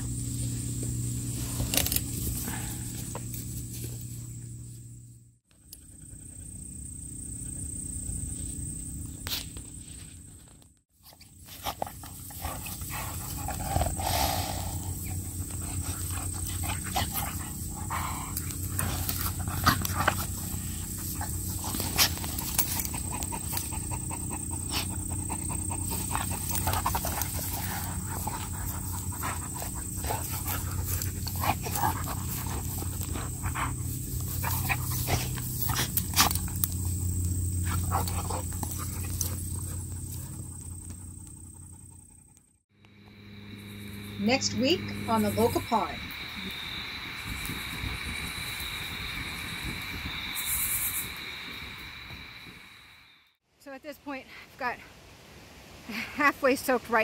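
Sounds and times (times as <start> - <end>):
dogs panting: 11.5 - 42.6.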